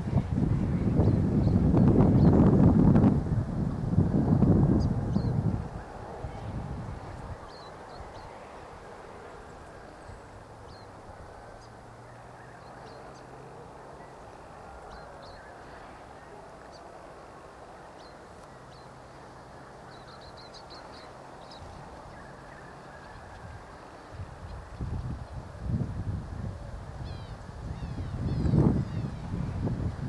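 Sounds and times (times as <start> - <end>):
small birds chirping: 4.7 - 17.0, 17.6 - 25.4, 27.0 - 29.6.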